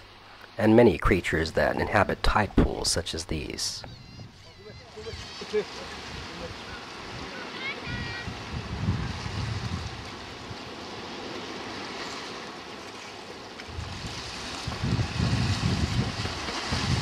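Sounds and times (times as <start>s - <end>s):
wind buffeting microphone: 3.7s - 12.0s, 13.7s - 17.0s
water hissing at shore: 4.9s - 17.0s.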